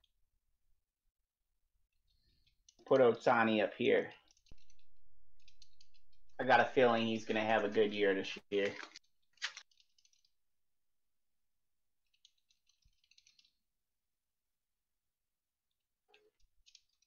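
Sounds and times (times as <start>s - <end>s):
foil wrapper crinkling: 8.6s - 9.8s.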